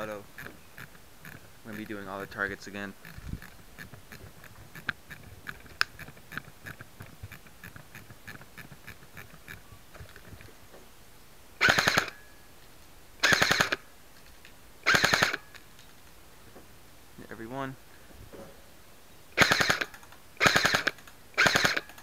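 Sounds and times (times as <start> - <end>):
airsoft rifle firing bursts: 11.6 - 12.2, 13.2 - 13.8, 14.8 - 15.5, 19.4 - 22.0.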